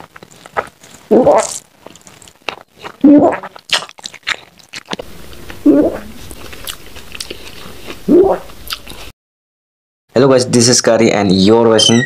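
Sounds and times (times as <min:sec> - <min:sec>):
wet chewing and lip smacks: 0:00.0 - 0:05.6, 0:06.2 - 0:09.1.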